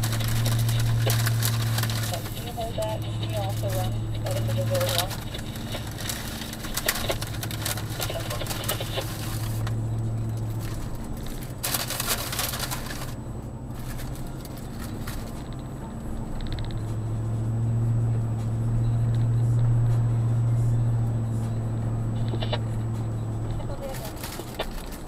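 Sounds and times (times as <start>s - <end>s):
crackling: 0.0s - 17.0s, 22.1s - 25.0s
car engine and road hum: 0.0s - 25.0s.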